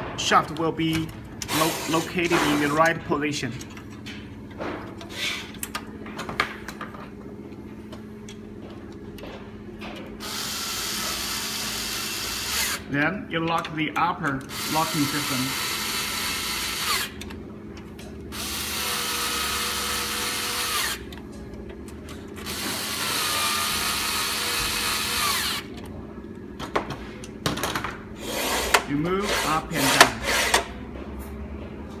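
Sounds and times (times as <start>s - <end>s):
metal parts clicking and knocking: 0.2s - 7.2s
electric screwdriver whining: 10.2s - 12.8s, 14.5s - 17.2s, 18.3s - 21.1s, 22.4s - 25.7s.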